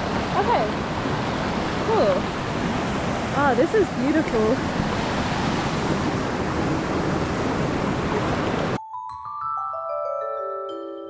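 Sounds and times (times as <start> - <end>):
water rushing over rocks: 0.0 - 8.8.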